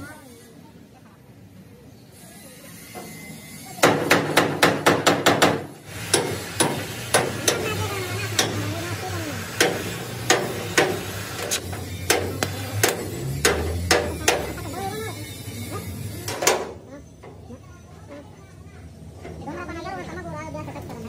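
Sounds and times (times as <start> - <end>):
hammer strikes on steel frame: 3.8 - 8.7, 9.5 - 14.7.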